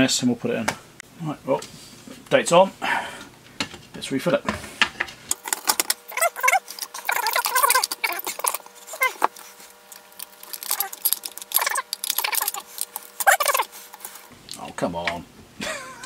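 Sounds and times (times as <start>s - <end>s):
handling clicks and knocks: 5.3s - 13.7s.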